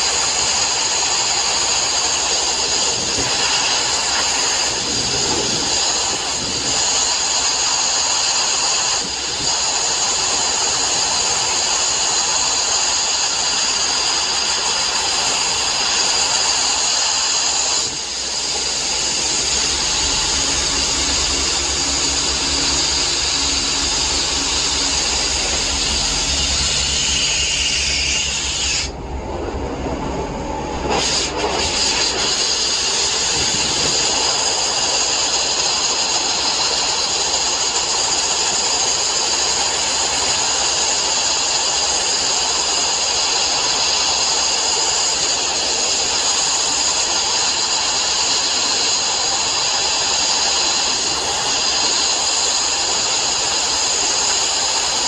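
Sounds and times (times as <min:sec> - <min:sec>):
sandblasting hiss: 0:00.0 - 0:29.0, 0:30.5 - 0:55.0.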